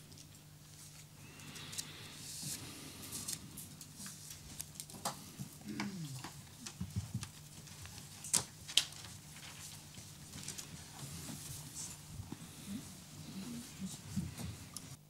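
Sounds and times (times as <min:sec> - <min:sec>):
small clicks and rustles: 0:03.1 - 0:12.0
low falling voice hum: 0:05.2 - 0:06.8, 0:12.2 - 0:14.9.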